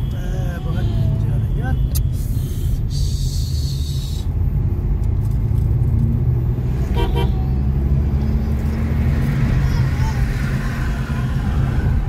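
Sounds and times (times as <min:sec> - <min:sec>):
car cabin engine and road noise: 0:00.0 - 0:12.0
vehicle horn toots: 0:06.9 - 0:07.4.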